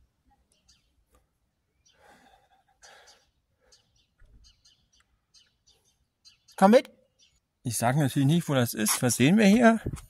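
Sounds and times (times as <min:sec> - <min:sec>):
faint distant bird chirps: 0:00.2 - 0:07.7.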